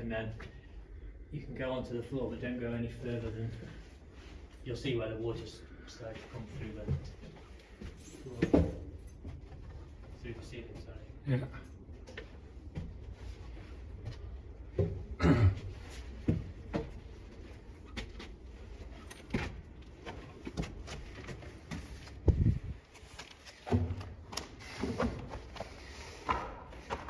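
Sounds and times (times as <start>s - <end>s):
footsteps on wooden stairs: 12.0s - 27.0s.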